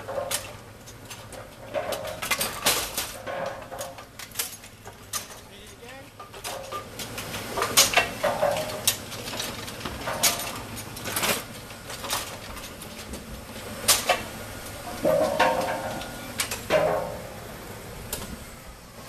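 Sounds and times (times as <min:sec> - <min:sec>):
pins clattering against metal: 0:00.1 - 0:06.9, 0:07.6 - 0:13.1
machine hum: 0:05.6 - 0:19.0.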